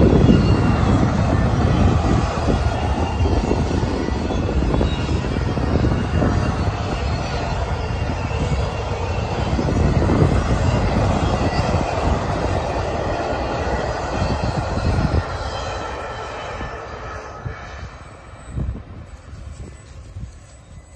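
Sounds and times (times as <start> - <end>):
freight train rumbling past: 0.0 - 20.9
wheels clattering on rails: 0.0 - 20.9
wind buffeting microphone: 0.0 - 20.9.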